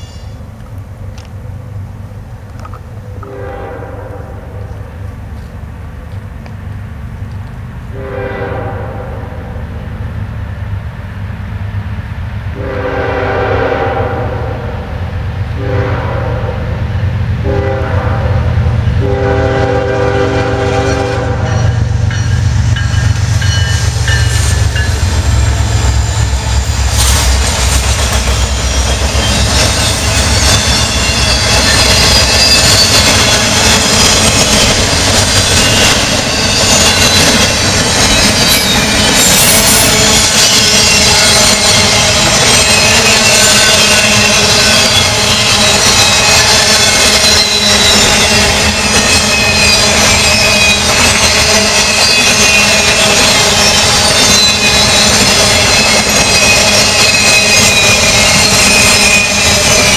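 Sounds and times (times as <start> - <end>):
locomotive horn: 3.1 - 4.6, 7.9 - 9.6, 12.6 - 14.9, 15.6 - 16.7, 17.4 - 21.8
train cars clattering: 16.9 - 59.9.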